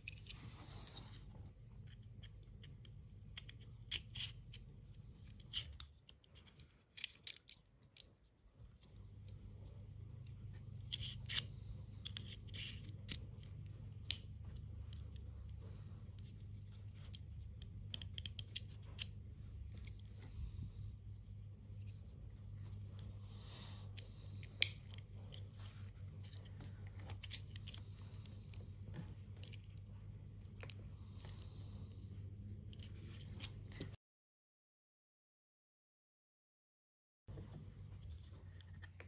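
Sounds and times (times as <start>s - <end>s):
steady low hum: 7.8s - 34.0s.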